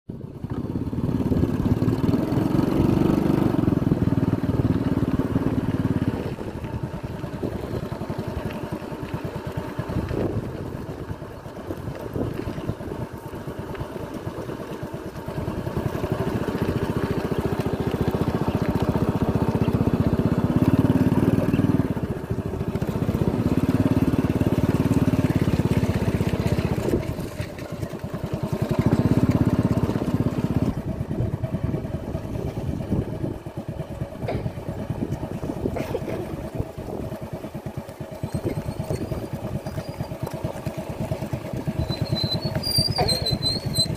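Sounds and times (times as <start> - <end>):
motorcycle engine running: 0.1 - 43.9.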